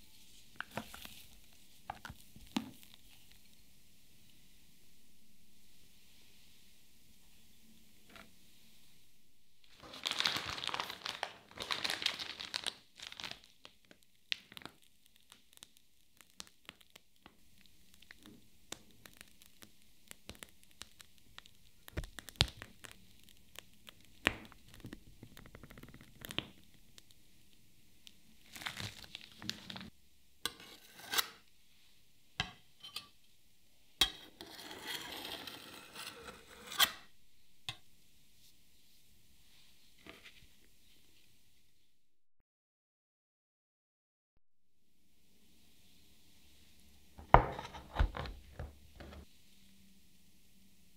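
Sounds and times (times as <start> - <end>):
piping bag crinkling: 9.6 - 27.3, 28.0 - 29.9
soft squishes: 9.8 - 29.9.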